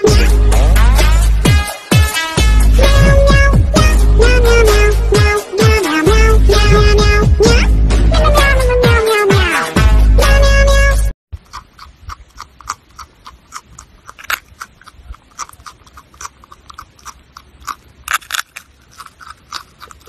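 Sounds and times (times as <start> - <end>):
marmot chewing crisp food: 11.4 - 20.0.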